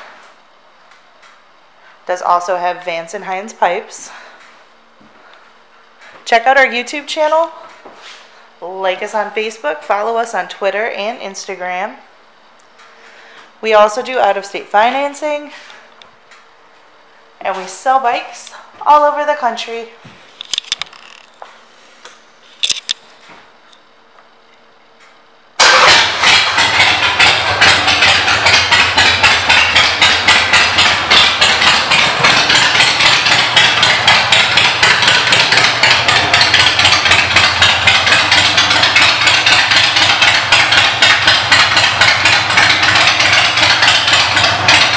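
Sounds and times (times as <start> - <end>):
motorcycle exhaust beat: 26.3 - 44.9.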